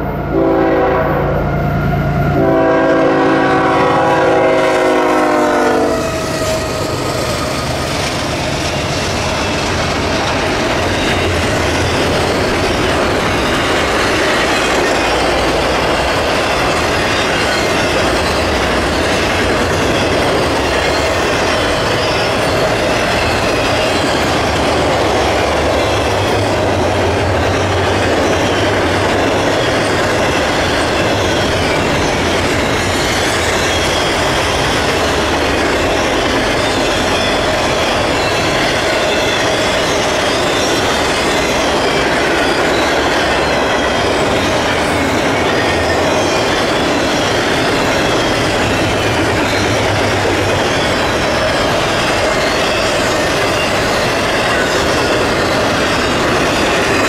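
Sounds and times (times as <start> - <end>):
train horn blasts: 0.3 - 6.8
freight cars rumbling and clacking: 6.3 - 57.0.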